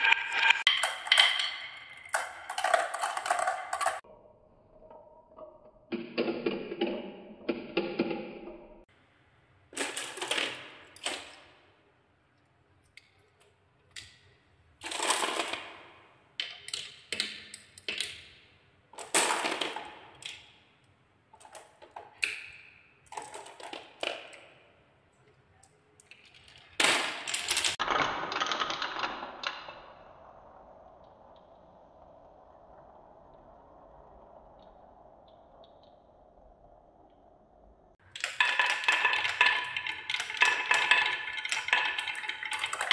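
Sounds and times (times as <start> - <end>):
marbles rattling down wooden tracks: 0.0 - 4.0, 9.8 - 11.6, 14.8 - 18.3, 19.0 - 20.8, 21.4 - 24.7, 25.3 - 31.2, 38.0 - 42.9.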